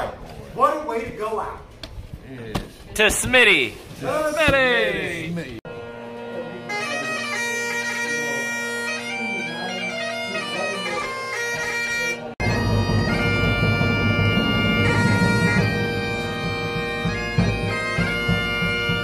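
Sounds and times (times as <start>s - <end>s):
bagpipes playing over drones: 5.7s - 19.0s.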